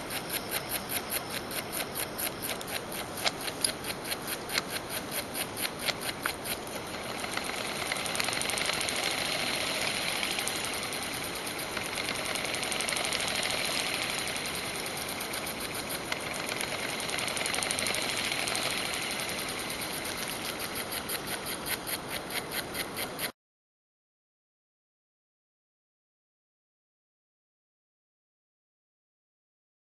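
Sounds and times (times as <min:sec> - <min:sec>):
solenoid engine clicking and rattling: 0:00.0 - 0:23.3.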